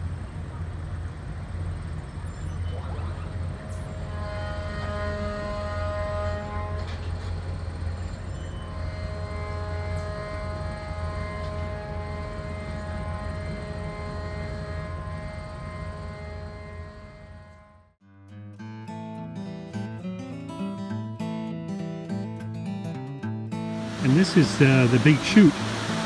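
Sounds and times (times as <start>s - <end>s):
motorboat engines rumbling: 0.0s - 17.6s, 23.8s - 26.0s
humming whine: 0.0s - 18.0s, 23.7s - 26.0s.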